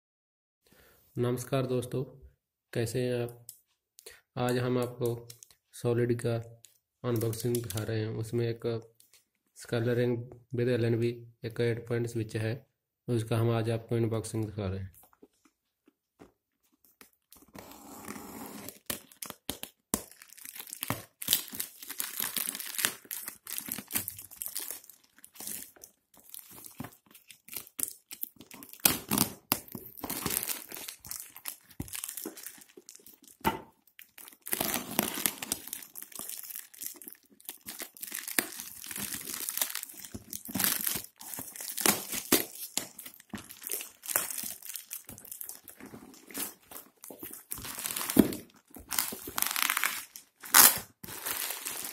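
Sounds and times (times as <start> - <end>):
plastic film crinkling and ripping: 18.6 - 51.9.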